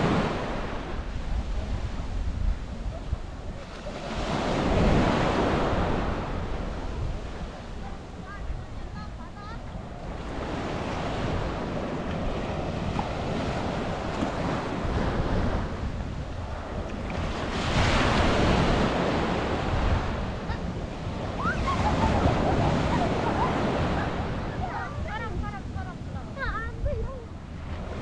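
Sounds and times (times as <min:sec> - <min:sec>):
sea waves breaking on beach: 0:00.0 - 0:28.0
wind rumbling on microphone: 0:00.0 - 0:28.0.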